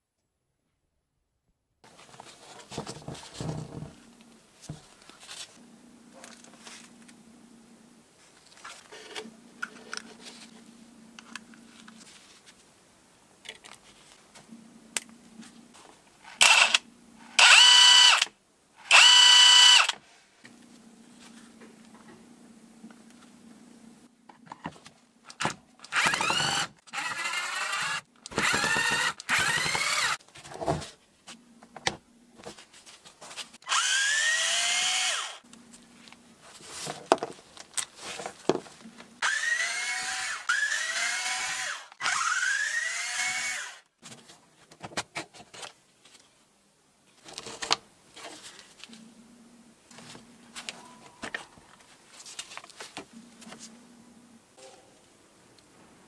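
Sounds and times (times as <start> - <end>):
impact wrench motor whine: 16.4 - 16.8, 17.4 - 18.3, 18.9 - 20.0, 25.9 - 30.2, 33.7 - 35.4, 39.2 - 43.8.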